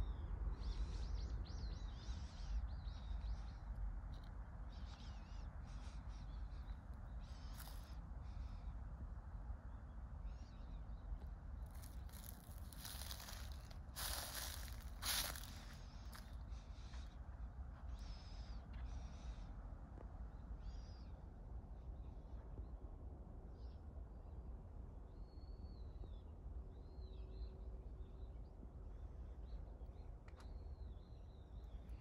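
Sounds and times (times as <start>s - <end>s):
small birds chirping: 4.7s - 8.7s, 10.3s - 17.1s
rustling noise: 11.7s - 16.3s.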